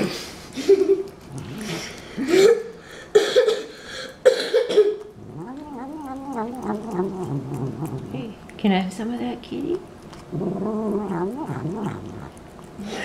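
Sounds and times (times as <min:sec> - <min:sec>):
cat making throaty sounds: 0:01.2 - 0:02.0, 0:05.0 - 0:08.4, 0:10.2 - 0:13.0.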